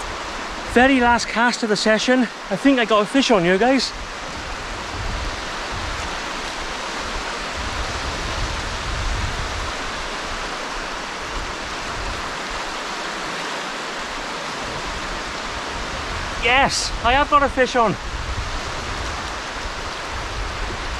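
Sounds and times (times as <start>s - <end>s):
small waves at shoreline: 0.0s - 20.9s
wind rushing: 3.9s - 10.4s, 14.6s - 20.9s
wind buffeting microphone: 3.9s - 13.3s, 14.0s - 20.9s.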